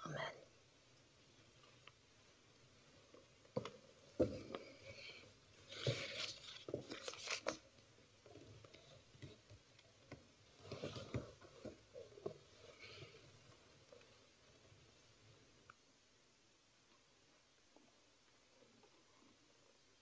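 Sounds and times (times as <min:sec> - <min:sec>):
faint knocks and clicks: 0:01.6 - 0:14.3
people moving about rustling: 0:02.6 - 0:15.0.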